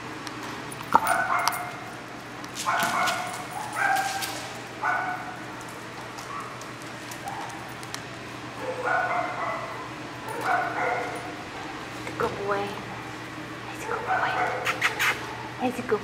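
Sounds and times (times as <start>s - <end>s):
dog barking: 1.0s - 1.8s, 2.6s - 5.4s, 8.6s - 11.8s, 13.8s - 15.5s.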